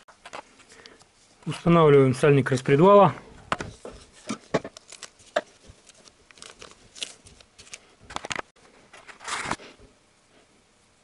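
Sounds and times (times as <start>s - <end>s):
plastic packet crinkling and tearing: 4.8s - 8.5s.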